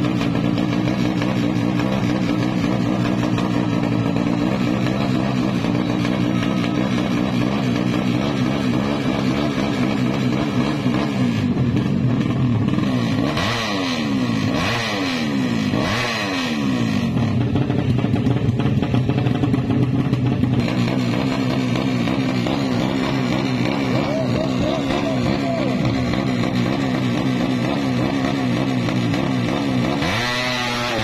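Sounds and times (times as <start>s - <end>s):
motorcycle engine revving: 0.0s - 31.0s.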